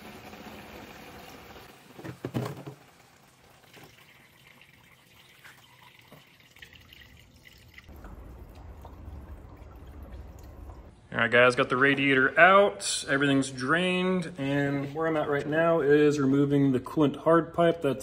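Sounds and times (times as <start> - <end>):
plastic jug handling noise: 1.8 - 3.0
liquid pouring into plastic jug: 1.9 - 10.9
liquid dripping: 3.1 - 10.9.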